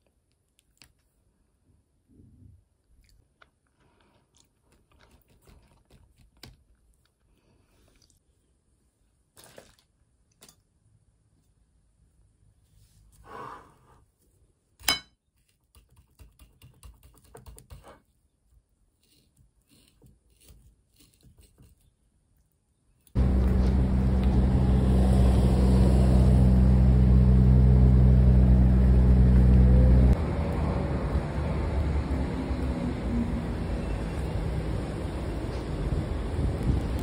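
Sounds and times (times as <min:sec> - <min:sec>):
street traffic rumble: 0:23.2 - 0:37.0.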